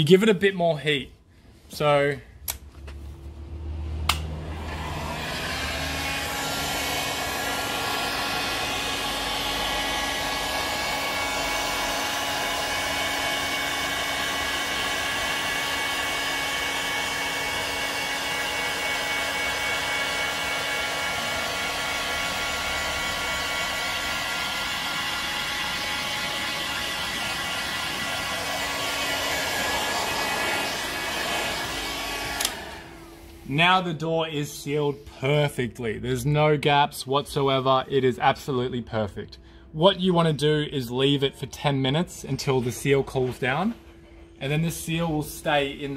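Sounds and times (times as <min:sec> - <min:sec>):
heat gun blowing air: 0:04.1 - 0:33.5.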